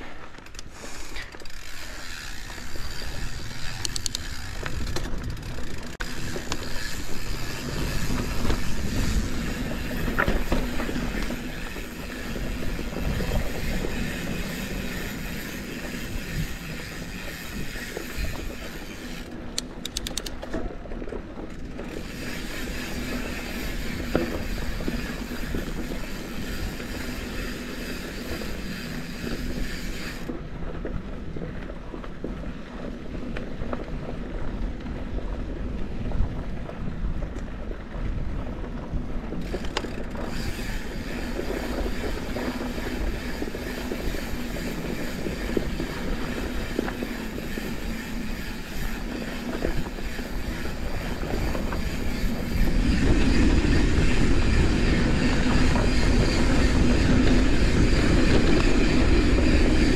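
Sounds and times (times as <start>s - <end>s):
bike frame rattling: 0.0s - 30.4s, 38.8s - 59.9s
bike tyres rumbling on dirt: 0.0s - 59.9s
freehub clicking rapidly: 1.2s - 20.4s, 21.5s - 30.3s, 39.4s - 59.9s
wind buffeting microphone: 1.7s - 59.9s.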